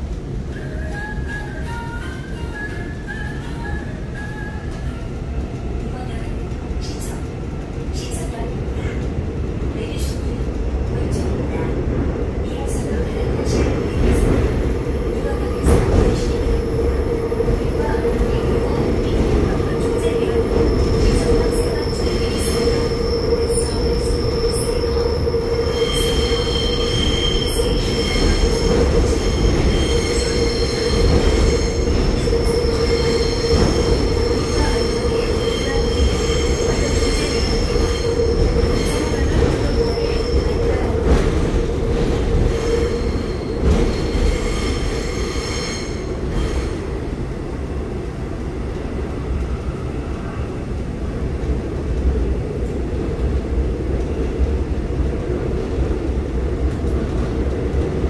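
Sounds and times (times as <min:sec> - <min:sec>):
train running rumble: 0:00.0 - 0:58.0
train wheels squealing on rails: 0:19.8 - 0:46.9.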